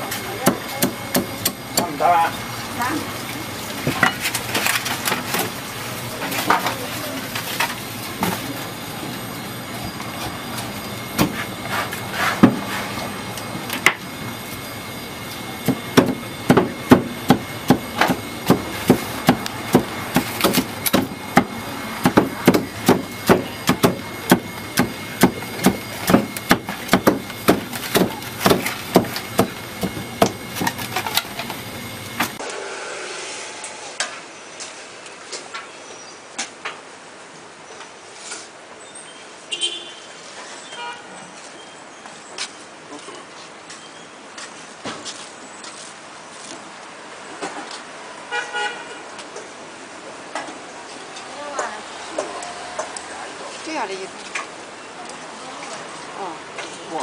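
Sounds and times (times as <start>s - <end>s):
cleaver chopping on wooden block: 15.7s - 30.4s.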